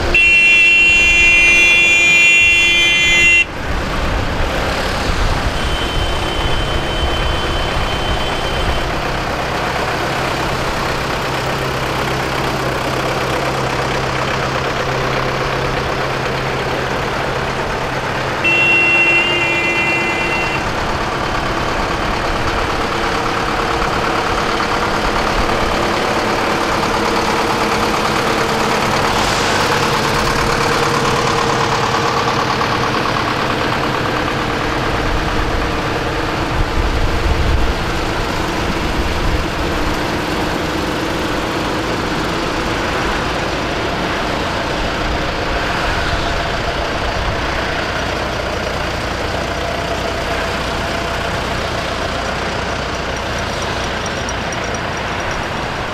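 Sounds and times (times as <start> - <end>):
held horn-like tone: 0.0 - 3.6, 5.5 - 9.1, 18.3 - 20.8
vehicle horn: 0.0 - 3.6, 5.5 - 9.0, 18.4 - 20.8
tractor diesel engines: 0.0 - 55.9.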